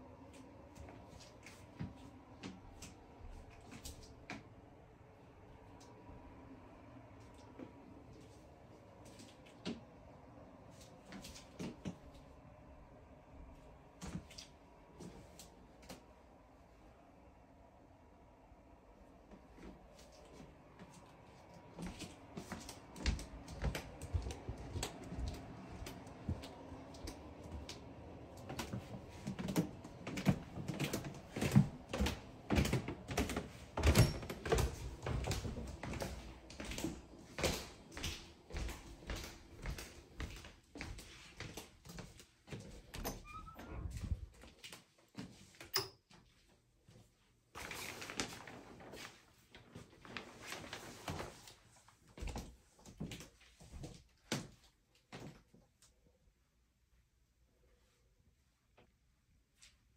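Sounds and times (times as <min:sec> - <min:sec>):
footsteps going down stairs: 0:19.3 - 0:45.5
shower curtain fabric rustling: 0:46.8 - 0:54.2.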